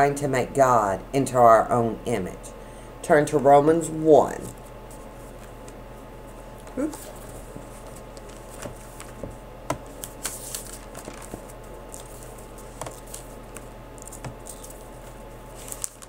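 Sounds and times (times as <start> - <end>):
steady low hum: 0.0 - 16.0
pages being turned: 6.9 - 16.0.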